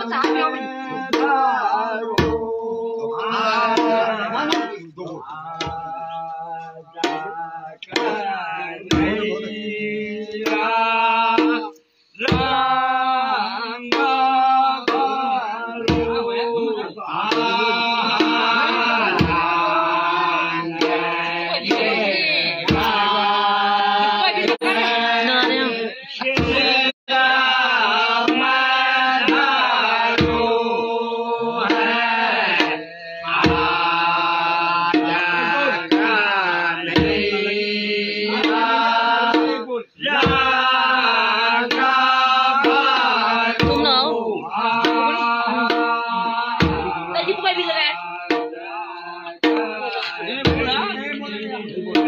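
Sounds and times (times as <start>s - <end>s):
men singing together: 0.0s - 52.0s
low drum beats: 3.3s - 6.1s, 7.0s - 9.6s, 10.3s - 12.7s, 13.9s - 16.6s, 17.2s - 20.0s, 20.6s - 26.9s, 28.2s - 30.9s, 31.5s - 40.9s, 41.6s - 48.6s, 49.3s - 51.0s, 51.8s - 52.0s.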